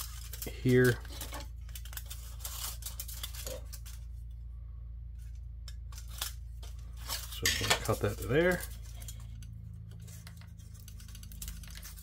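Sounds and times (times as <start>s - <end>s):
aluminium foil crinkling and scraping: 0.0s - 4.4s, 5.2s - 12.0s.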